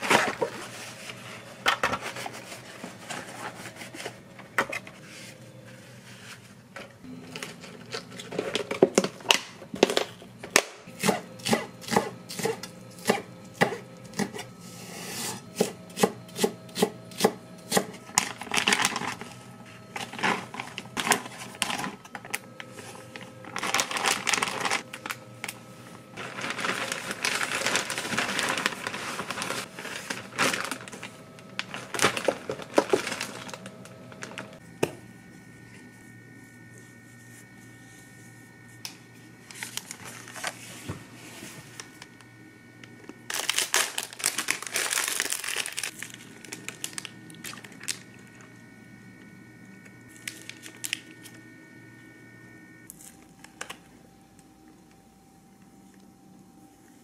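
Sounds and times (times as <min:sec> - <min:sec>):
plastic bag crinkling: 0:18.2 - 0:19.3, 0:20.0 - 0:34.6, 0:43.3 - 0:48.4, 0:50.1 - 0:51.2.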